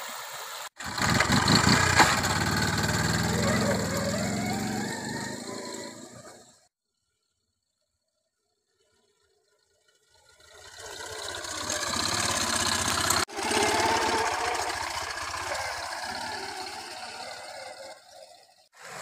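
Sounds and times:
motorcycle passing by: 0.8 - 6.5, 10.0 - 19.0.

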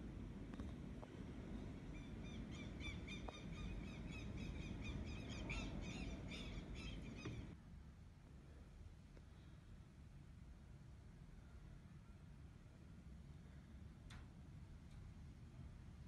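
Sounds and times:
wind rumble: 0.0 - 7.6
bird chirping: 1.5 - 7.6.

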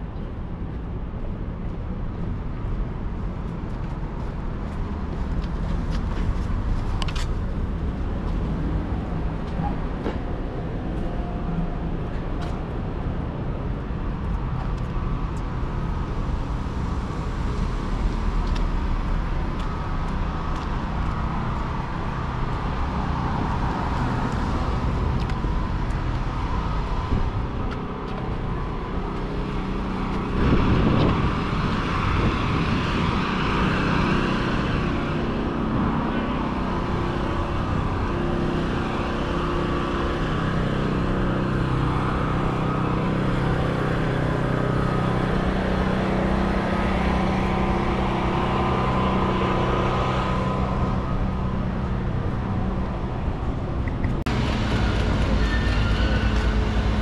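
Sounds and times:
cars passing with low rumble: 0.0 - 57.0
loud vehicle passing close: 15.1 - 57.0.

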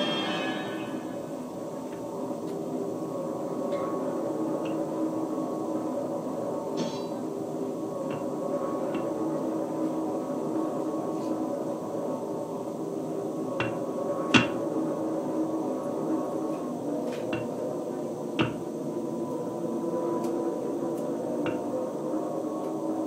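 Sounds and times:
electronic noise drone: 0.0 - 10.9.

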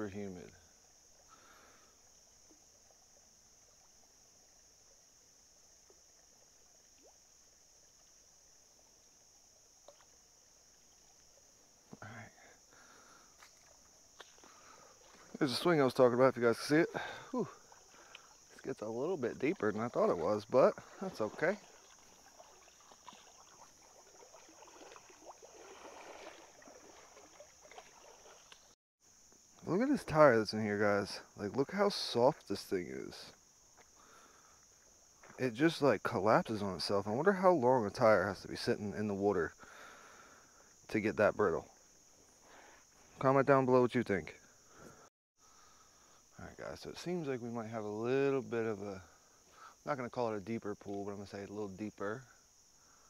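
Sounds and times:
legs wading through creek water: 0.0 - 28.8, 29.6 - 43.3
high-pitched insect chorus: 0.0 - 53.0
faint ticks: 9.0 - 15.4, 17.0 - 18.6, 26.2 - 29.7, 33.3 - 35.4.

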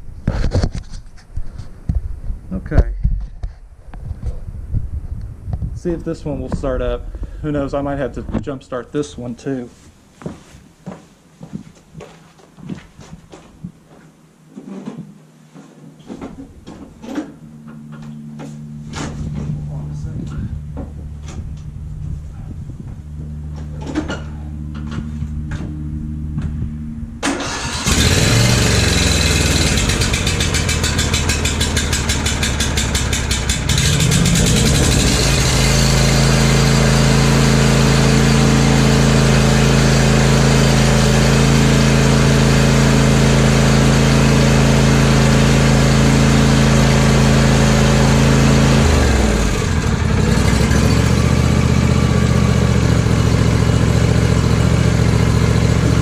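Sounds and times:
lawn tractor engine running: 23.0 - 56.0
lawn tractor engine cranking: 27.2 - 56.0.

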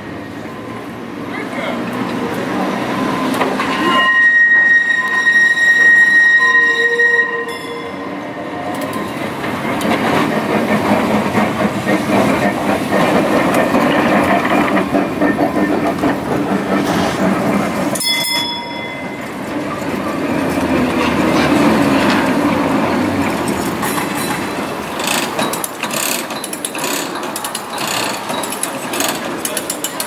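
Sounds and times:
tram rumbling over rails: 0.0 - 30.0
tram wheels squealing: 0.0 - 30.0.

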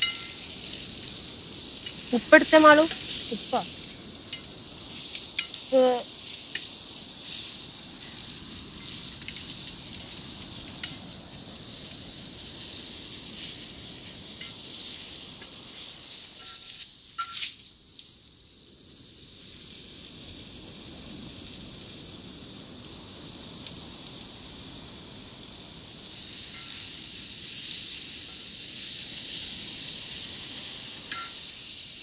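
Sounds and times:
shallots sizzling in hot oil: 0.0 - 32.0.

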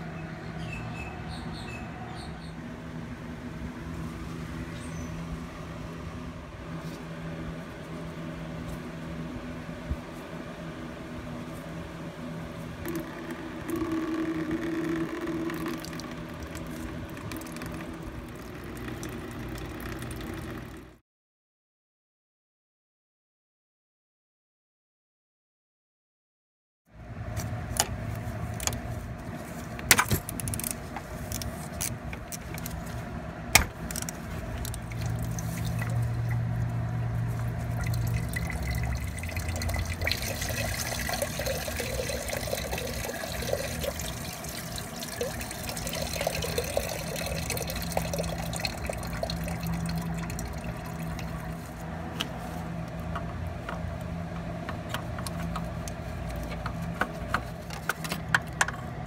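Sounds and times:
coolant pouring and trickling: 12.7 - 21.0, 33.6 - 52.0.

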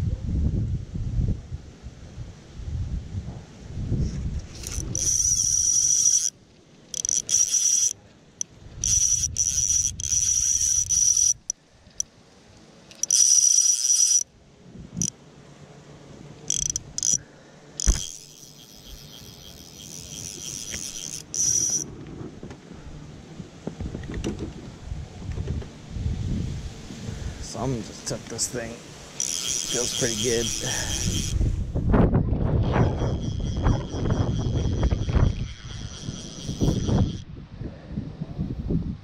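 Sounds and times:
fly reel clicker buzzing: 4.5 - 12.1, 12.8 - 14.3, 15.0 - 15.2, 16.4 - 21.9, 28.3 - 31.5, 32.6 - 37.3.

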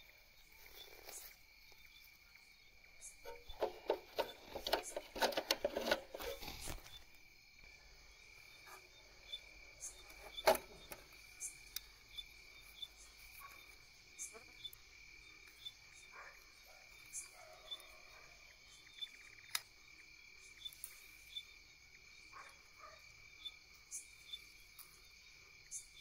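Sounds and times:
crickets trilling: 0.0 - 26.0
contactor clicking and rattling: 3.2 - 6.8.

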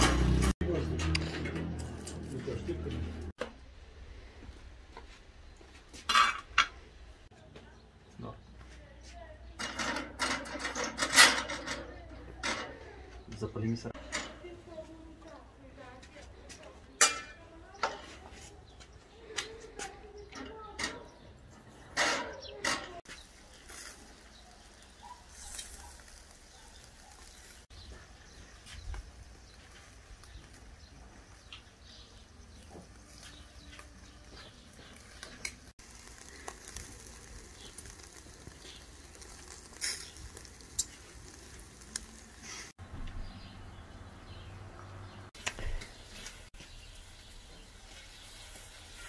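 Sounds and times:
metal tongs clinking: 17.0 - 17.4
meat sizzling on a grill: 22.1 - 42.8, 45.5 - 49.0.

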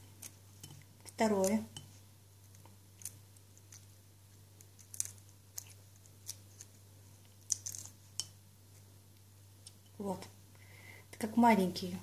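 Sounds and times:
shrimp shell crackling: 4.6 - 8.2.

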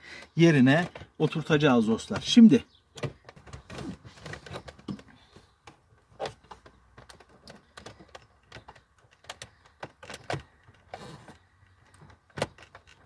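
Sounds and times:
hard plastic clicks and knocks: 3.0 - 11.0, 11.6 - 13.0.

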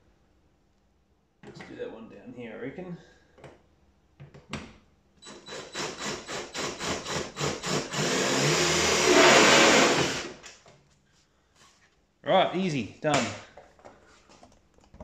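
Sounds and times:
power drill whirring: 5.2 - 10.5.

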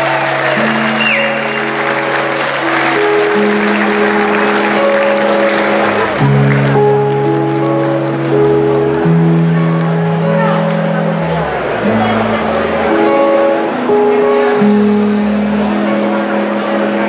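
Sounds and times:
blues band playing: 0.0 - 17.0
crowd applauding and cheering: 0.0 - 17.0
falling whistle: 0.8 - 2.1.

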